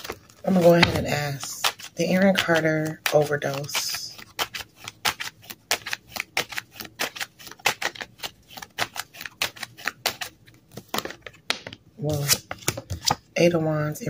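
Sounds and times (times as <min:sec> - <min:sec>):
cards being shuffled: 0:00.0 - 0:13.3.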